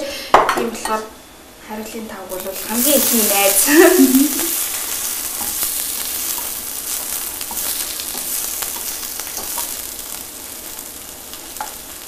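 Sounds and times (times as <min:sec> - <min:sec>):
bread sizzling in a pan: 0:02.3 - 0:12.0
spatula ticking in pan: 0:05.0 - 0:09.8, 0:11.4 - 0:11.9.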